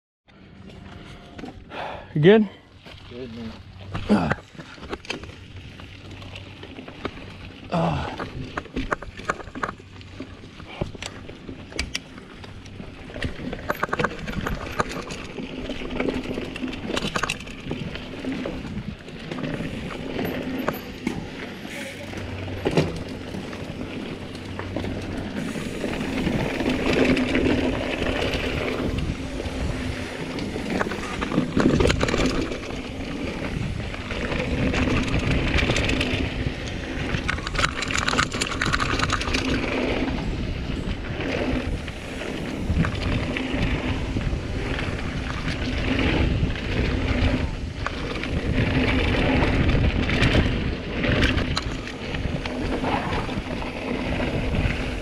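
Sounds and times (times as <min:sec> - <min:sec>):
bike knocks and rattles: 0:03.8 - 0:55.0
wind buffeting microphone: 0:12.6 - 0:55.0.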